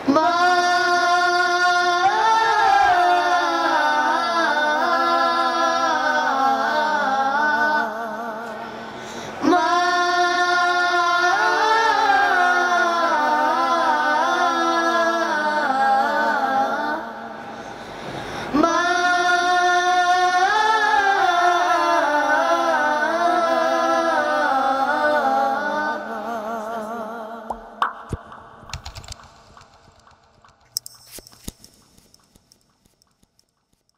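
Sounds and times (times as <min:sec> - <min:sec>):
boys singing unaccompanied: 0:00.0 - 0:08.6, 0:09.4 - 0:17.2, 0:18.5 - 0:27.8.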